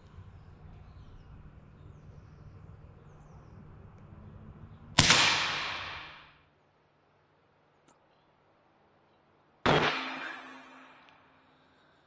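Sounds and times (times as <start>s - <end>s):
air rifle shot: 5.0s - 6.4s, 9.7s - 10.6s.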